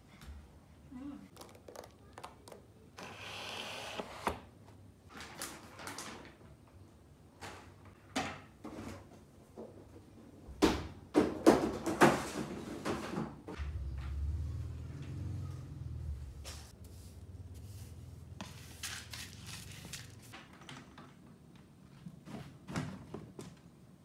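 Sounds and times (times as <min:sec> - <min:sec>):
plastic litter boxes knocking: 0:10.6 - 0:13.6
rustling: 0:16.5 - 0:21.0.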